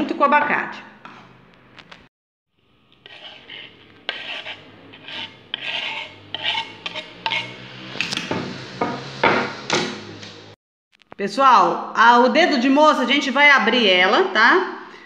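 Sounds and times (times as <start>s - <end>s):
knife scraping wooden board: 3.0s - 8.1s.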